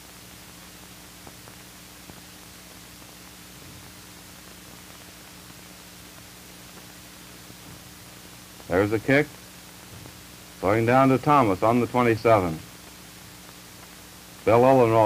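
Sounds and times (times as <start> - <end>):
film soundtrack hiss: 0.0 - 15.0
low electrical hum: 0.0 - 15.0.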